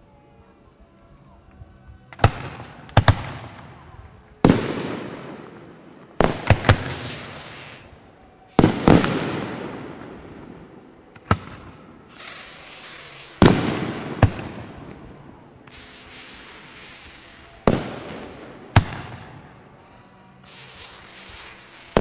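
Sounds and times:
hissing firework crackle: 2.1s - 22.0s
firework shells bursting: 4.4s - 7.9s, 11.1s - 15.0s, 15.6s - 22.0s.

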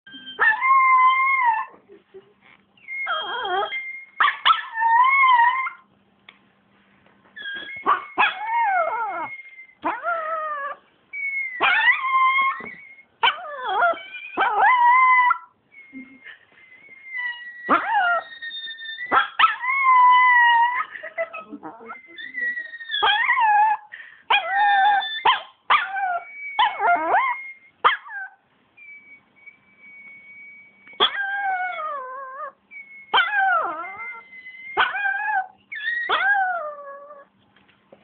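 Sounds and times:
dog howling: 8.0s - 10.8s, 11.5s - 15.5s, 17.2s - 23.8s, 25.8s - 27.4s, 31.0s - 32.6s, 33.2s - 37.3s.

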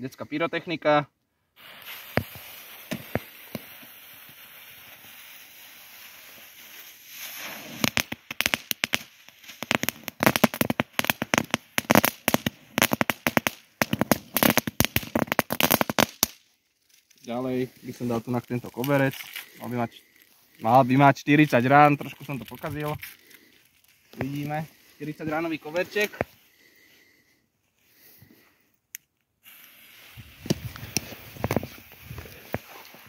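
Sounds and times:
firecracker fuse hissing: 1.6s - 26.9s, 29.4s - 33.0s
firecracker small sharp bangs: 1.8s - 3.8s.

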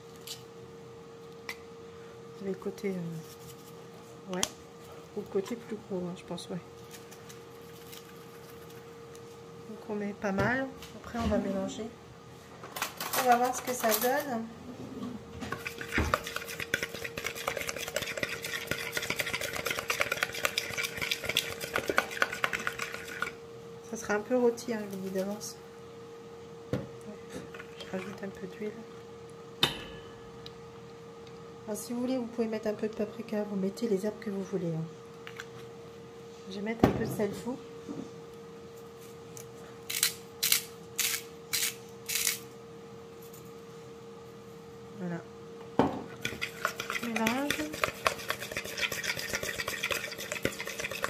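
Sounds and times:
faint steady hum: 0.0s - 51.0s
fork stirring in plastic bowl: 15.5s - 23.4s, 46.1s - 51.0s
salt grinder grinding: 15.5s - 23.4s, 46.2s - 51.0s.

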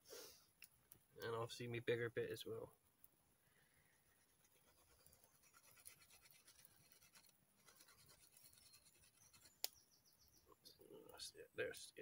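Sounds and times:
stone scraping bark from stick: 4.6s - 9.8s.

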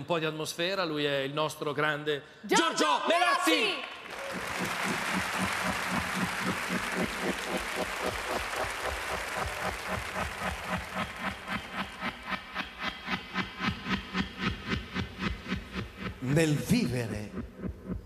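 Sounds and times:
audience applauding: 3.8s - 13.5s.

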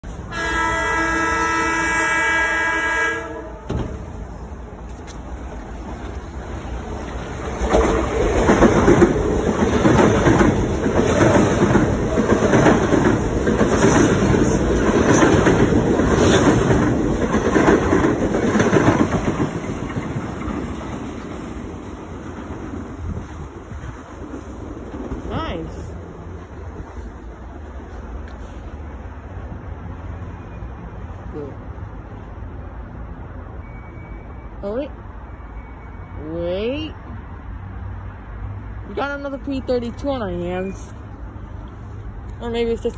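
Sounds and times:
train horn: 0.2s - 3.8s
train wheels clicking over rail joints: 3.6s - 25.3s.

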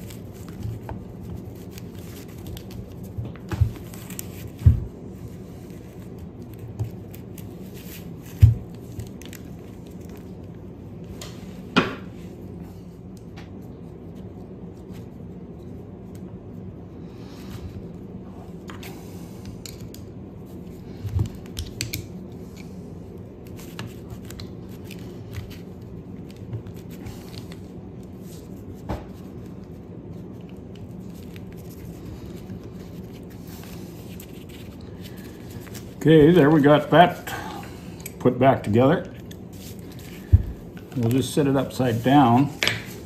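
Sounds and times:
low background hum: 0.0s - 43.0s.

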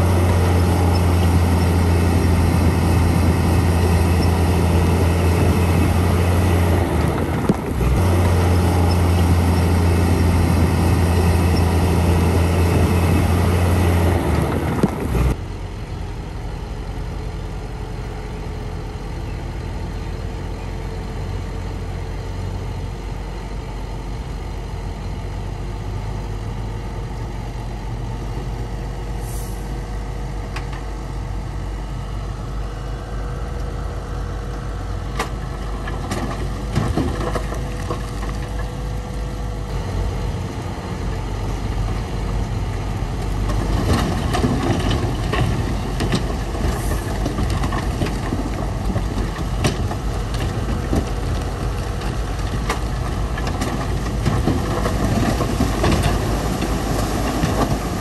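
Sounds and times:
diesel machinery rumbling: 0.0s - 58.0s.

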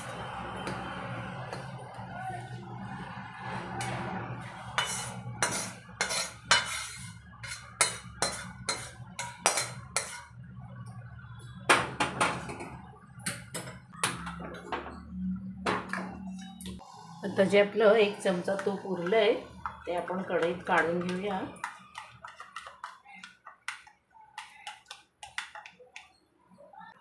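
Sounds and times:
metal spatula scraping a wok: 3.4s - 10.4s.

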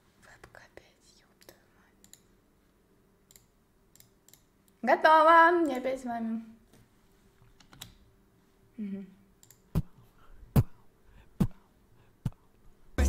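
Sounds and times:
computer mouse clicking: 1.4s - 2.3s, 3.3s - 4.5s, 7.6s - 8.0s, 9.4s - 9.8s.

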